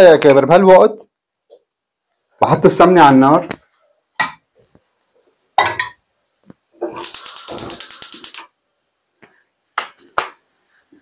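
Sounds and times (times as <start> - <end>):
gas igniter clicking rapidly: 7.0 - 8.5.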